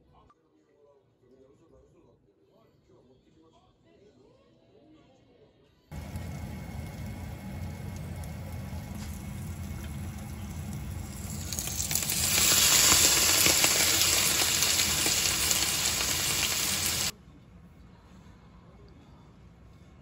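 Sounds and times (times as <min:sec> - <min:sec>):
dumplings sizzling in frying pan: 0:05.9 - 0:17.1.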